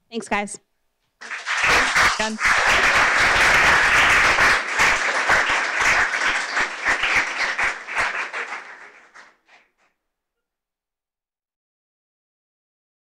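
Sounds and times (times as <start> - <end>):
audience applauding: 1.2 - 9.6.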